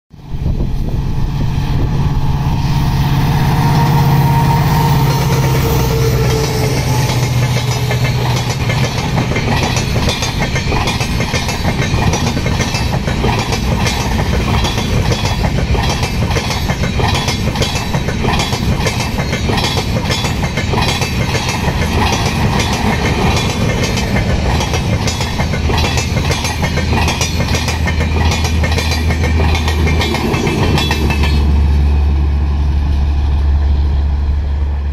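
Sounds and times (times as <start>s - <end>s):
train passing loud drone: 0.1s - 34.9s
train wheels clickety-clack: 4.4s - 32.0s.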